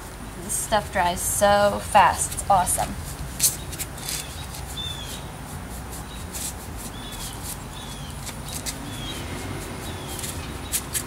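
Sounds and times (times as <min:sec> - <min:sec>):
paintbrush strokes on wood: 0:00.0 - 0:11.0
small animal chirping: 0:03.6 - 0:05.3, 0:06.9 - 0:11.0.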